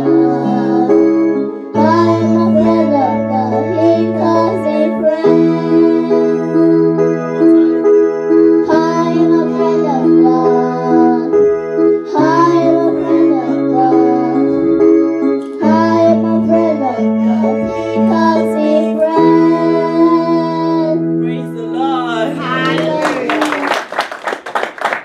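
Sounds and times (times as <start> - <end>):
electronic keyboard chords: 0.0 - 23.6
children singing: 12.0 - 14.5, 15.5 - 21.0.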